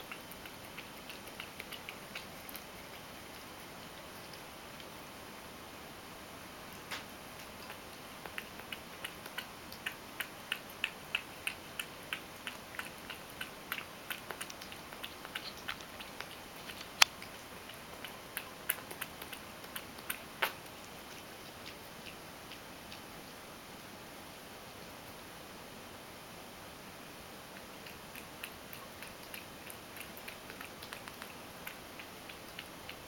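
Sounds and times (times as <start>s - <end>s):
cat lapping milk: 0.0s - 5.6s, 6.6s - 23.3s, 27.5s - 33.0s.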